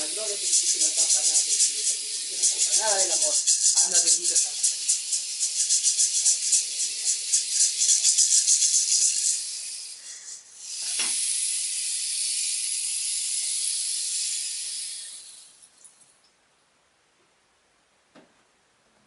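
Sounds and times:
rattle shaking: 0:00.0 - 0:16.2
steady hiss: 0:00.0 - 0:16.4.

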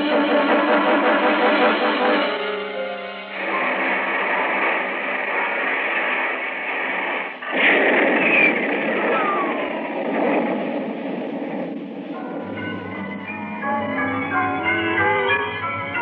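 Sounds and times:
rocket rushing noise: 0:02.8 - 0:12.1.

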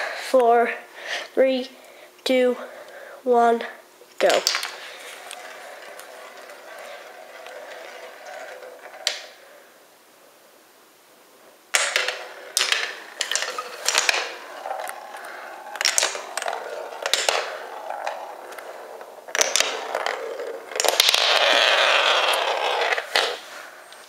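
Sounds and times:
marble clicking through wooden run: 0:04.2 - 0:09.4, 0:11.7 - 0:23.4
marble rolling rattle: 0:04.2 - 0:09.7, 0:11.7 - 0:23.9.

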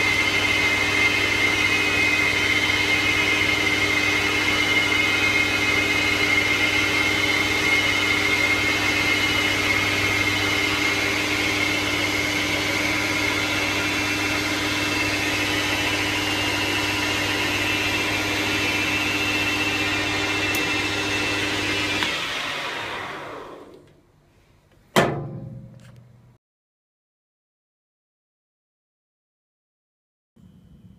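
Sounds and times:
lathe motor hum with gear whine: 0:00.0 - 0:23.8
sharp metal clank: 0:25.0 - 0:26.2.

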